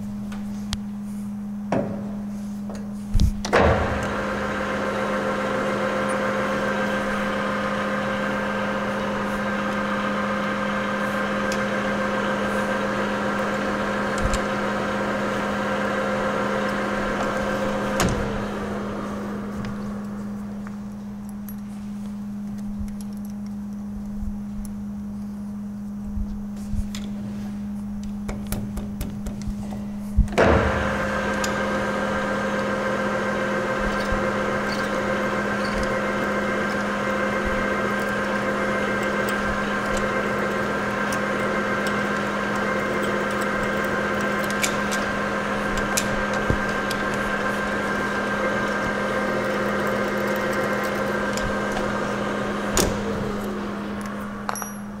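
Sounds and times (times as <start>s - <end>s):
lathe winding down: 3.5s - 20.7s, 30.4s - 55.0s
lathe running with steady whine: 3.5s - 21.3s, 30.4s - 55.0s.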